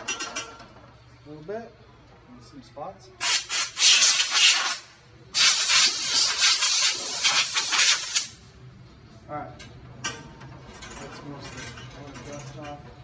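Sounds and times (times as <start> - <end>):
compressed air blow gun blasting: 3.2 - 8.4.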